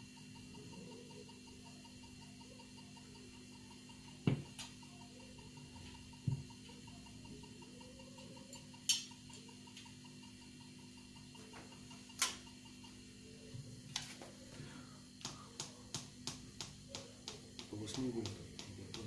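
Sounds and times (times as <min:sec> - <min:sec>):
metronome ticking: 0:00.0 - 0:13.5, 0:15.1 - 0:19.0
evenly spaced clicks: 0:05.4 - 0:12.9, 0:15.2 - 0:19.0.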